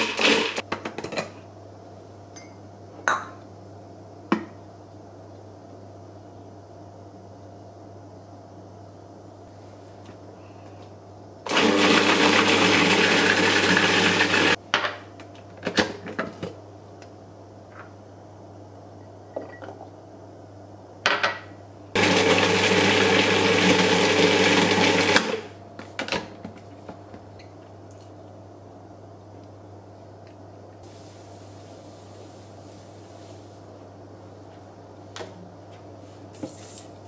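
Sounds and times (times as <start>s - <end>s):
food processor running: 0.0s - 0.6s, 11.5s - 14.6s, 22.0s - 25.5s.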